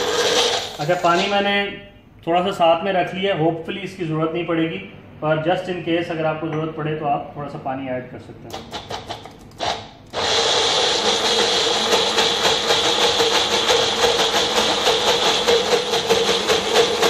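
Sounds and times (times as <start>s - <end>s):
blender grinding: 0.0s - 1.4s, 8.5s - 17.0s.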